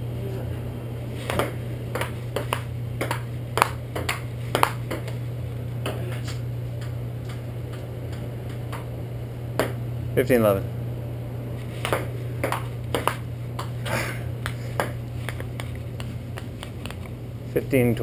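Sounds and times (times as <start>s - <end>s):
steady low hum: 0.0s - 18.0s
ping-pong ball hits: 1.3s - 5.1s, 11.8s - 13.7s.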